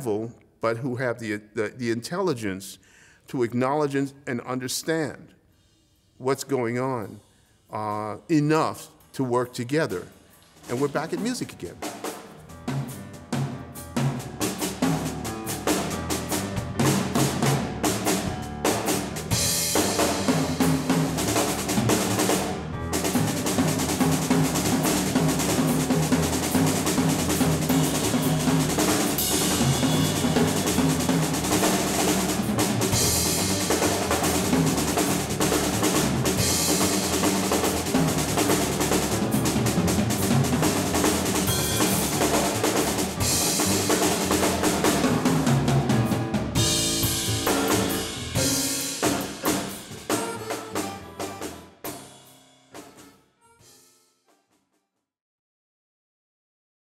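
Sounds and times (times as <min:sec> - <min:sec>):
jazz drum kit playing: 0:10.0 - 0:53.9
upright bass: 0:12.6 - 0:51.6
cymbal wash: 0:41.4 - 0:43.9.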